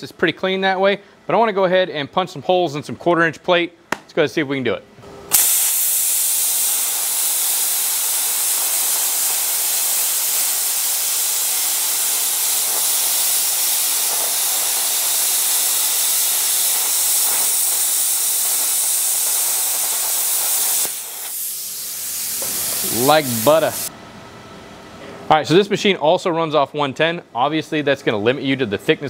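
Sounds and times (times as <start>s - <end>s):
plasma cutter arc hissing: 5.3s - 23.9s
faint hiss: 5.4s - 23.9s.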